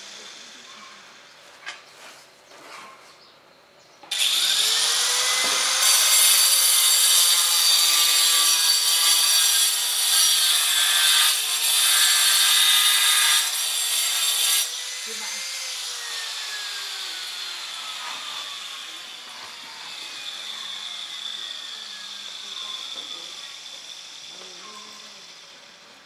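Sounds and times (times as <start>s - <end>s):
angle grinder cutting tile: 0.0s - 1.2s, 4.1s - 26.0s.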